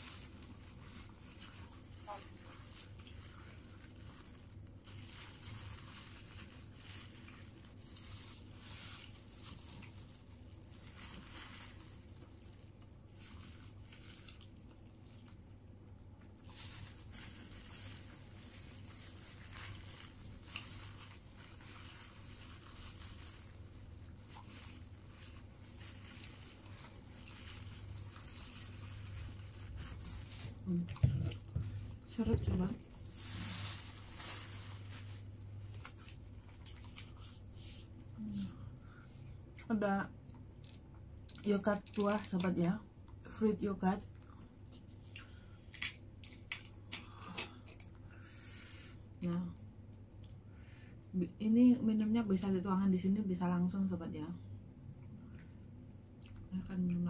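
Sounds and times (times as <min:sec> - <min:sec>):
plastic glove and paper crinkling: 0:00.0 - 0:38.7, 0:40.6 - 0:46.9
soft chewing: 0:11.0 - 0:16.8, 0:35.4 - 0:42.4, 0:44.1 - 0:48.2, 0:54.9 - 0:57.0.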